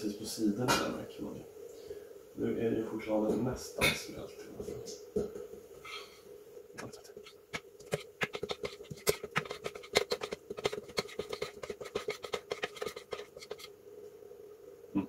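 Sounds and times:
metal spoon scraping metal bowl: 6.8 - 13.7.

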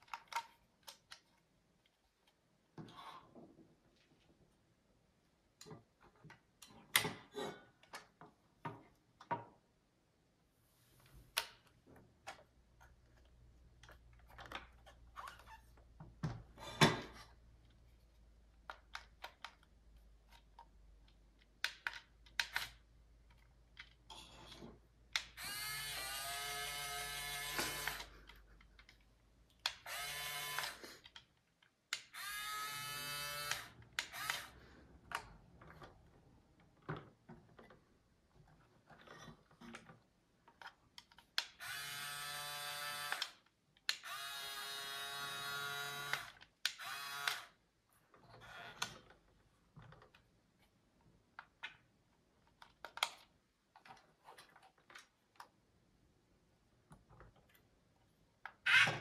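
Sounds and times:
small electric motors whining: 25.4 - 28.1, 29.9 - 30.8, 32.2 - 34.5, 44.0 - 47.5.

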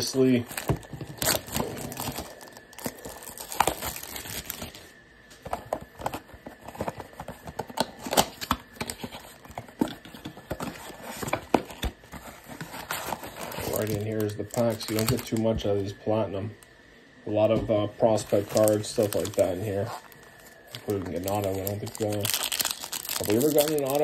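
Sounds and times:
cardboard box torn open: 0.0 - 4.8, 5.8 - 15.4, 20.8 - 24.0
plastic wrap crinkling: 0.0 - 16.0, 18.0 - 24.0.

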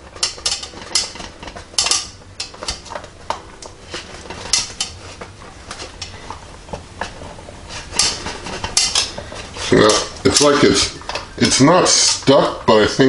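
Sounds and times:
metal pan clanking: 0.0 - 6.4, 7.0 - 12.4.

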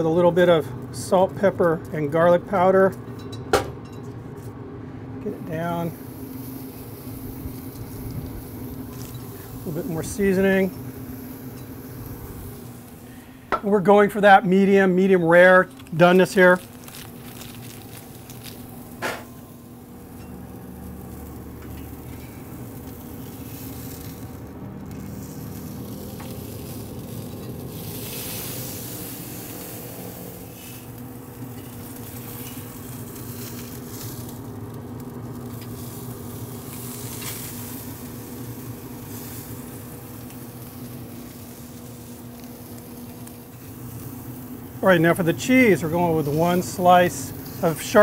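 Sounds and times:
low hum: 2.9 - 37.2
burger patty sizzling on grill: 5.2 - 48.0.

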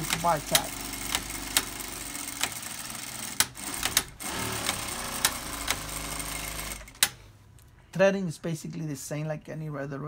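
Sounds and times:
sewing machine stitching: 0.0 - 7.0.

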